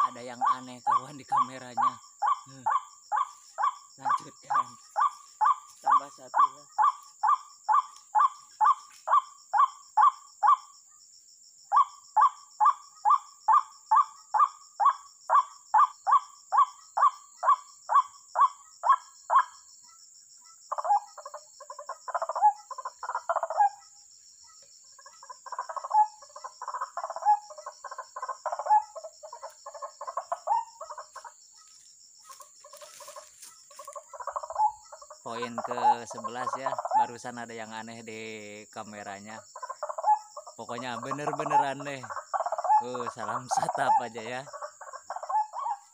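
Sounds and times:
bird chattering: 0.0s - 10.6s, 32.6s - 37.3s, 39.3s - 45.9s
bird calling repeated notes: 39.6s - 45.9s.

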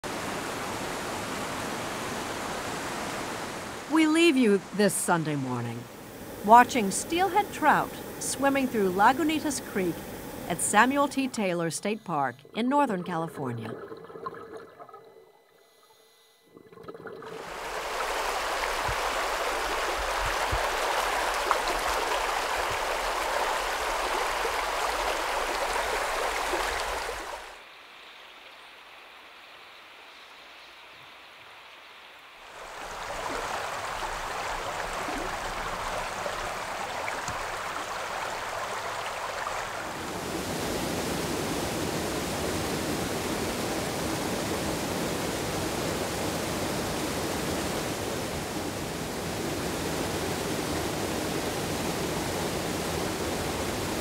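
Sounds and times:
creek water rushing over rocks: 0.0s - 10.8s, 17.2s - 27.7s, 32.4s - 54.0s.

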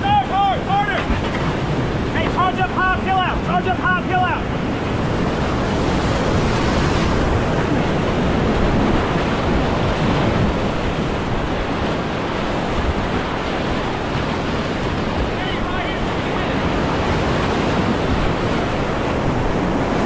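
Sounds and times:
whitewater rapids rushing: 0.0s - 20.0s.

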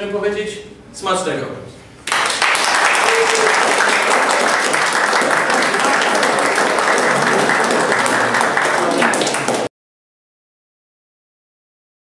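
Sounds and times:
group of people clapping: 2.0s - 9.7s.

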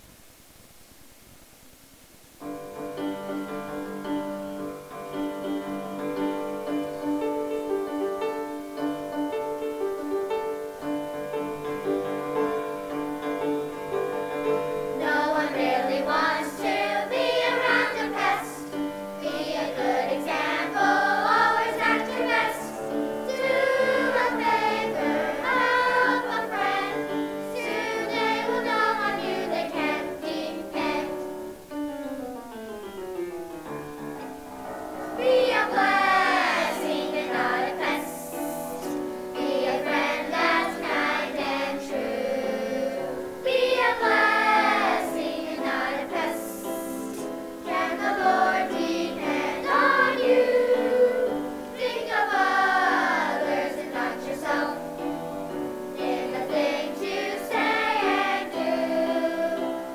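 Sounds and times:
children's choir singing: 3.3s - 31.6s, 34.7s - 59.9s.

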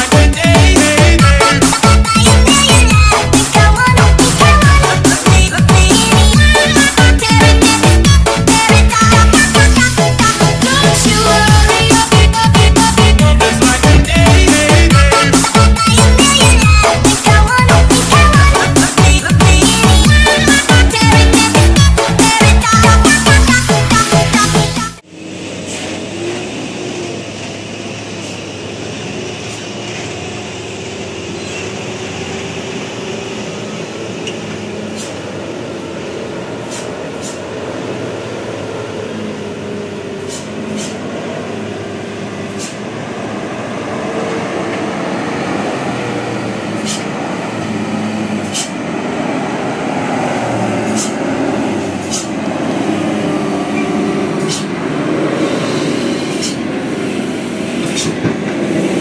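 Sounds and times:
diesel truck engine running: 0.0s - 59.0s
short sharp hisses: 36.7s - 37.4s, 40.2s - 41.0s, 42.5s - 42.8s, 48.4s - 48.8s, 50.8s - 51.2s, 52.0s - 52.3s.

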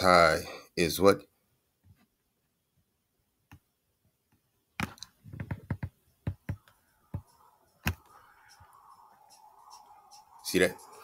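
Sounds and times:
computer mouse clicking: 4.8s - 10.2s.

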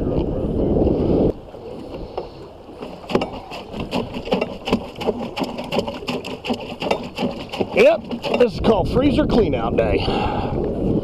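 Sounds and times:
water around hull: 0.0s - 11.0s
small clicks and knocks on boat: 1.8s - 8.7s.

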